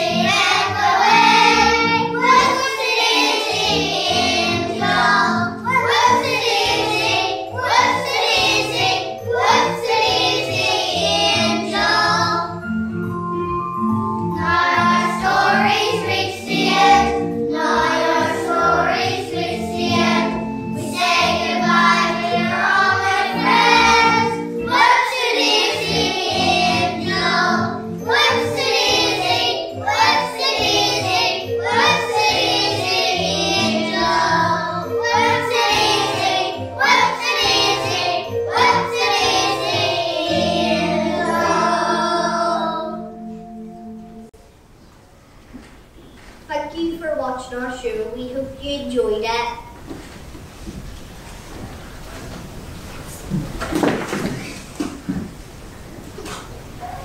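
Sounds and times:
children singing in unison: 0.0s - 12.6s, 14.4s - 43.3s
instrumental accompaniment with bass: 3.0s - 44.3s.

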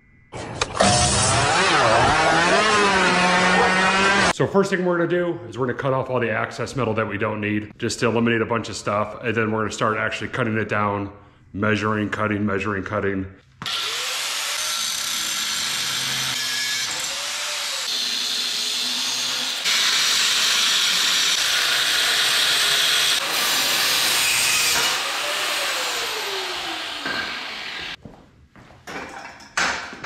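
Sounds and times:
cutoff wheel grinding steel: 0.6s - 4.3s, 13.7s - 28.0s.

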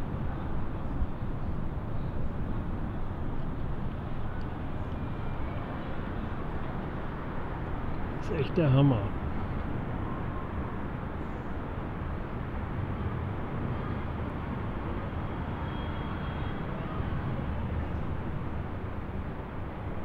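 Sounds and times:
low rumbling background noise: 0.0s - 20.0s.

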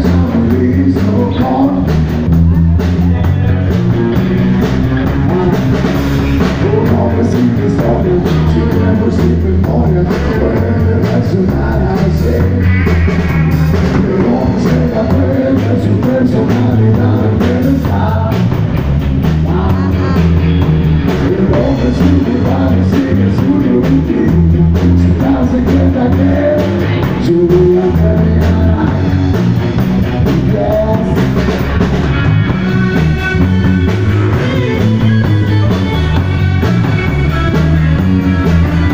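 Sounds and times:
person singing: 0.0s - 3.7s, 5.0s - 18.6s, 19.4s - 29.2s, 30.2s - 31.6s
bass guitar: 0.0s - 38.9s
drum kit: 0.0s - 38.9s
electric guitar: 0.0s - 38.9s.

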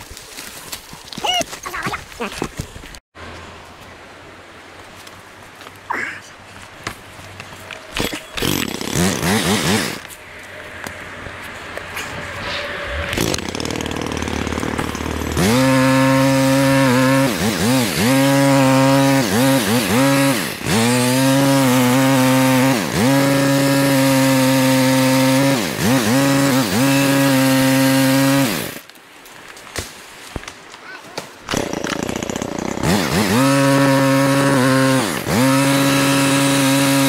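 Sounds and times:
chainsaw running: 8.0s - 10.1s, 13.1s - 28.8s, 31.5s - 37.0s
rushing noise: 10.1s - 14.4s.

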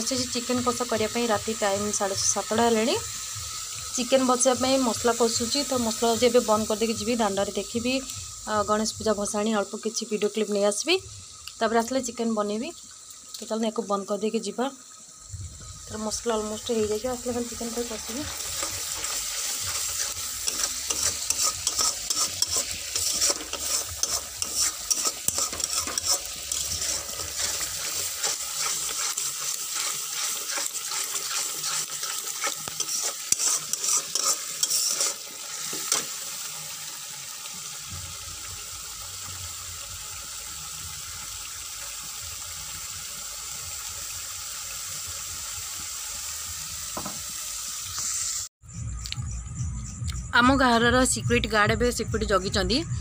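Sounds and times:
paste sizzling in a pan: 0.0s - 48.5s
spatula scraping and knocking pan: 18.0s - 36.2s.

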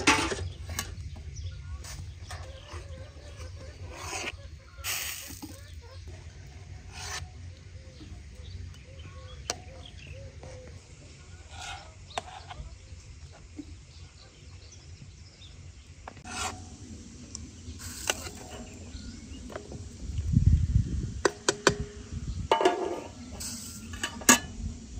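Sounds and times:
scraping and rubbing: 1.8s - 7.5s, 10.4s - 12.7s, 16.1s - 16.9s, 17.8s - 19.8s
steady low rumble: 15.1s - 24.9s.

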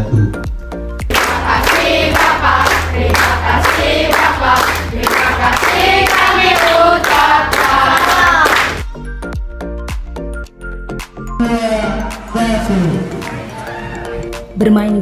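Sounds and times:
clapping along to a beat: 1.0s - 9.1s
children singing together: 1.1s - 8.8s.

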